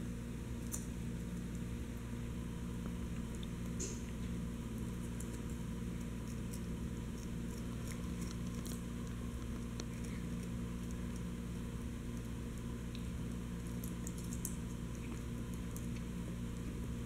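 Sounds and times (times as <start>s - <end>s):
steady low hum: 0.0s - 17.0s
teeth clicking on chew: 4.8s - 11.3s, 12.0s - 16.7s.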